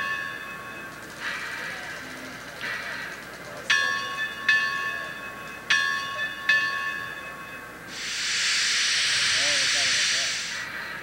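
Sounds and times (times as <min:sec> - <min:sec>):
locomotive bell clanging: 0:00.0 - 0:07.9, 0:10.6 - 0:11.0
loud steam hiss: 0:07.9 - 0:10.8.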